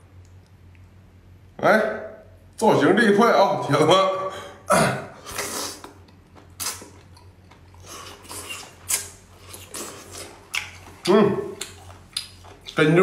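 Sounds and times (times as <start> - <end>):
person slurping and chewing: 5.2 - 12.8
wet mouth smacks: 6.6 - 7.1, 8.1 - 10.8, 11.6 - 12.4.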